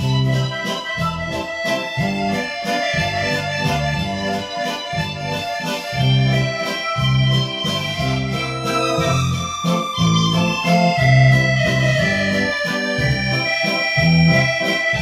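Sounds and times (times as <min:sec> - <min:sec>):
held keyboard chords: 0:00.0 - 0:15.0
repeating bass line: 0:00.0 - 0:15.0.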